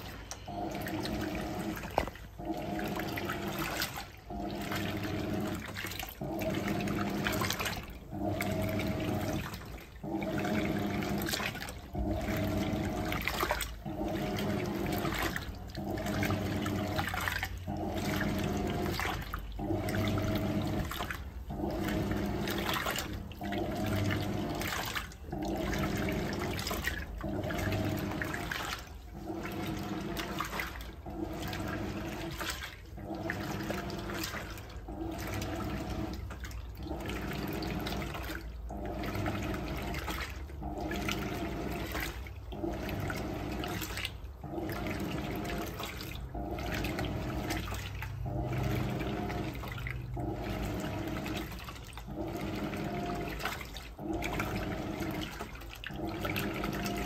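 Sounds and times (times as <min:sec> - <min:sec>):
washing machine motor hum: 0:00.0 - 0:57.0
water sloshing in washing machine: 0:00.0 - 0:57.0.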